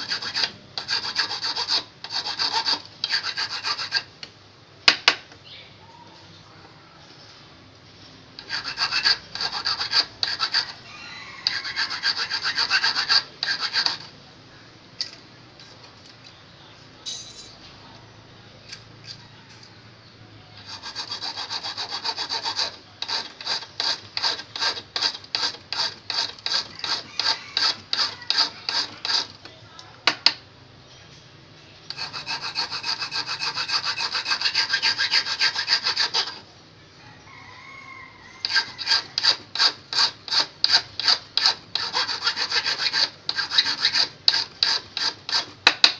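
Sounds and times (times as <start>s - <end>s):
metal file rasping on steel: 0.0s - 4.1s, 8.4s - 10.8s, 11.4s - 14.1s, 20.6s - 29.5s, 31.9s - 36.4s, 38.4s - 45.9s.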